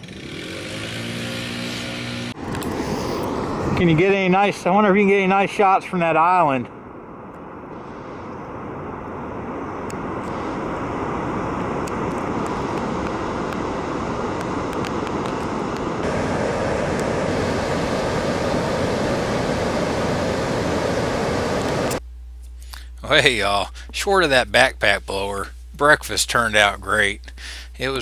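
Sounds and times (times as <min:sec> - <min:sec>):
water rushing over dam and rapids: 0:11.2 - 0:21.9.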